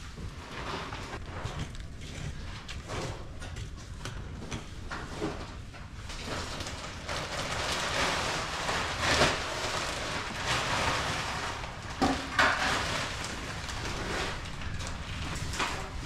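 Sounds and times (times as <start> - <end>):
plastic bag rustling: 5.1 - 16.0.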